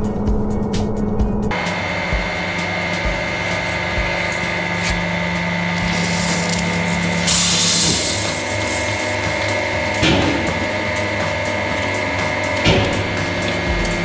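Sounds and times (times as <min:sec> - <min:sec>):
low machine hum: 0:00.0 - 0:14.0
hydraulic press whining: 0:01.5 - 0:14.0
hiss of liquid spraying: 0:03.5 - 0:09.9.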